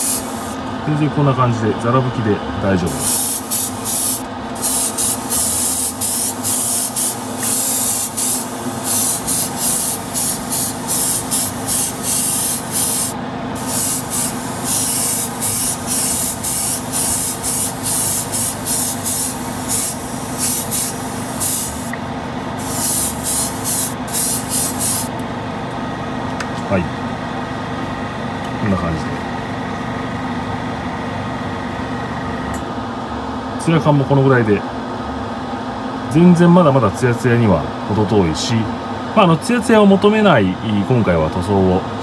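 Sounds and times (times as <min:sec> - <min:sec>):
airbrush spraying hiss: 0:00.0 - 0:00.6, 0:02.9 - 0:22.0, 0:22.6 - 0:25.1
steady low hum: 0:00.0 - 0:42.0.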